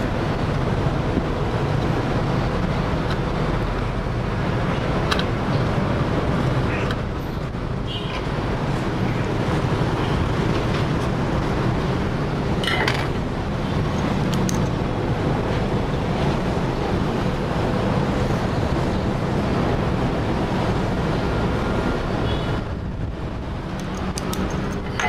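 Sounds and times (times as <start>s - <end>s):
loud whooshing noise: 0.0s - 25.0s.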